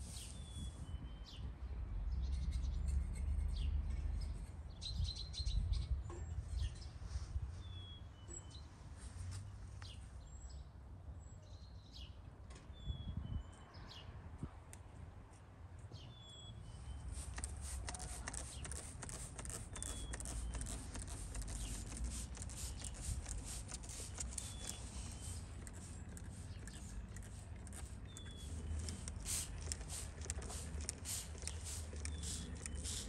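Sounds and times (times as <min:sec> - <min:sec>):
spray bottle spraying: 0:17.0 - 0:33.0.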